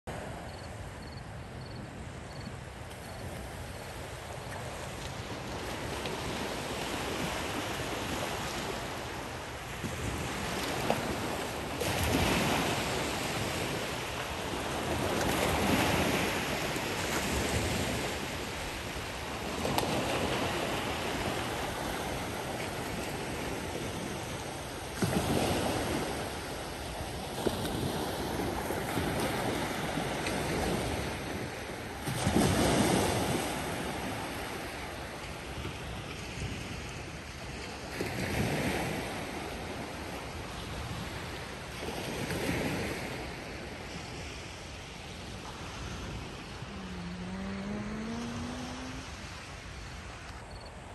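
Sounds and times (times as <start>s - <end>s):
sea waves breaking on beach: 3.0s - 50.9s.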